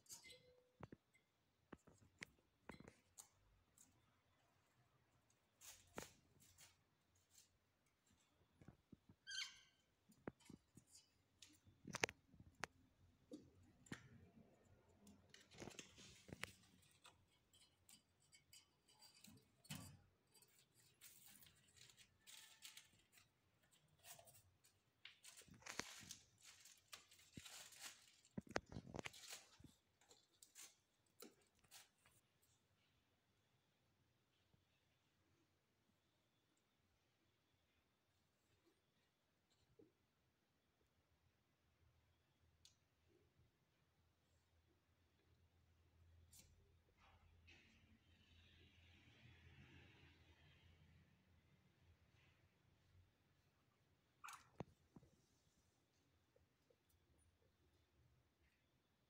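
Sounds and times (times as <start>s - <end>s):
kittens rustling and scuffing: 5.2s - 9.1s, 10.0s - 32.7s.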